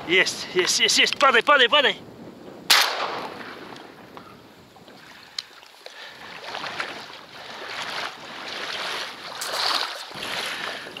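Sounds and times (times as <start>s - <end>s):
water sloshing and swishing: 4.7s - 11.0s.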